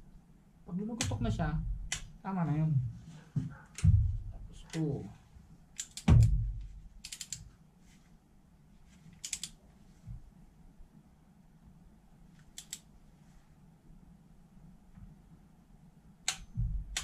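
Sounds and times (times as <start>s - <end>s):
loud low knock: 3.8s - 4.4s.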